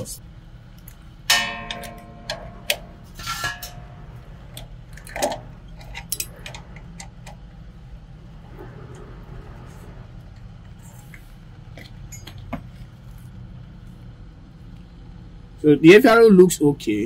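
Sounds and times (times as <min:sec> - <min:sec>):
metal tools and screws clinking: 0:00.8 - 0:07.4.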